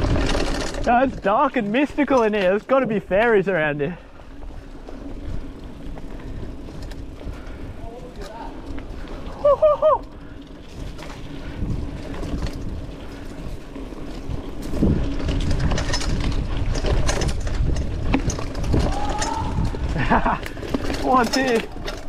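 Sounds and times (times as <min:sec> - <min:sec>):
bike rattles and knocks: 0:00.0 - 0:22.0
bike tyres rumbling on dirt: 0:00.0 - 0:22.0
wind on microphone: 0:04.6 - 0:20.8.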